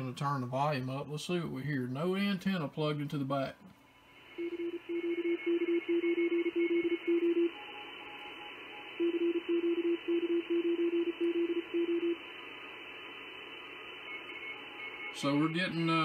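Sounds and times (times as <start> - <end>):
faint high morse signals: 2.8 - 16.0
morse code tone: 4.3 - 12.3, 13.9 - 16.0
radio band hiss: 7.3 - 16.0.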